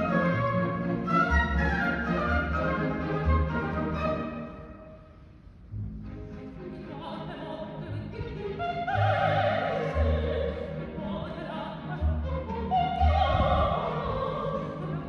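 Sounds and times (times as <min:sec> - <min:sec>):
symphony orchestra playing: 0:00.0 - 0:15.0
soprano singing operatically: 0:06.7 - 0:15.0.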